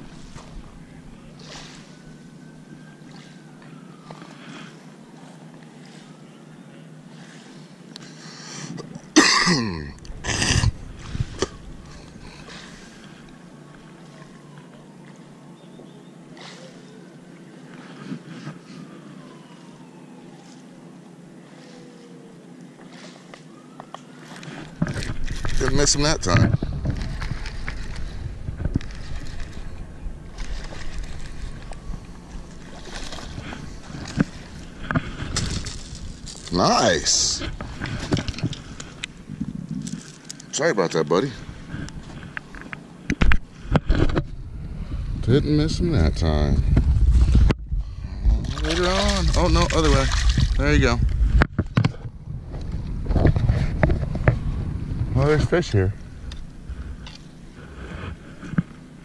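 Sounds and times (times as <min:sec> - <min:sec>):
low rumble of wind and water: 0:00.0 - 0:59.0
man coughing: 0:09.1 - 0:10.7
fish splashing at water surface: 0:48.4 - 0:50.6.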